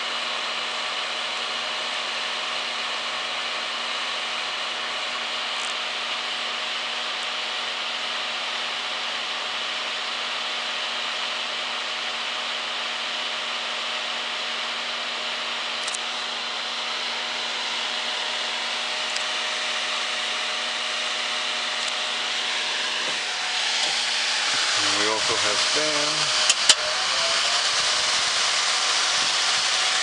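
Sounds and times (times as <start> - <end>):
fan heater air rush: 15.4 - 30.0
heater being handled: 25.6 - 26.9.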